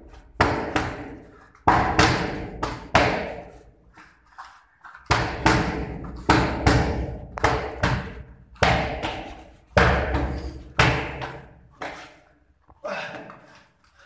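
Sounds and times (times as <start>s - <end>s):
boxing gloves hitting mitts: 0.0s - 3.7s, 5.0s - 12.2s.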